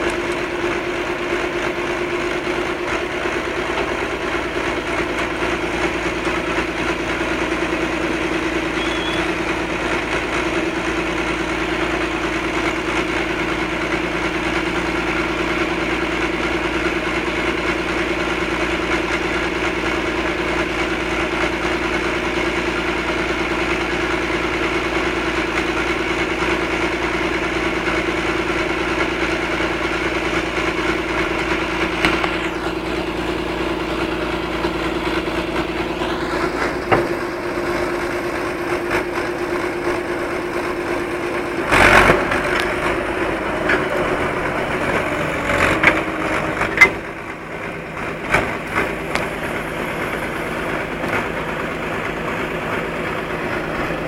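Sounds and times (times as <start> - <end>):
diesel engine droning: 0.0 - 54.0.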